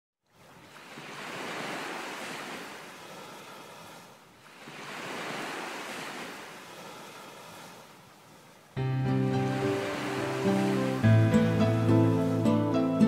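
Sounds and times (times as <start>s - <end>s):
small waves washing onto beach: 0.3s - 12.5s.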